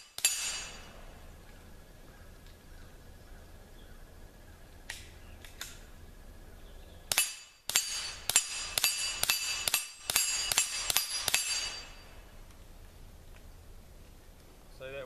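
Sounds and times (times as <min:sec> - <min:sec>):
suppressed pistol shots: 0:07.1 - 0:11.8.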